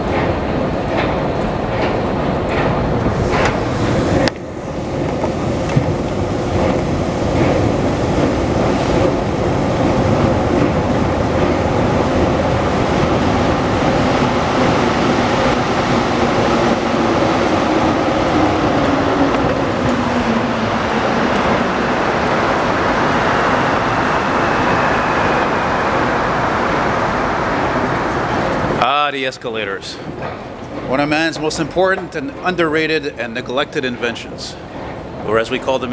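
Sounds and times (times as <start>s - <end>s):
escalators rumbling: 0.0s - 35.9s.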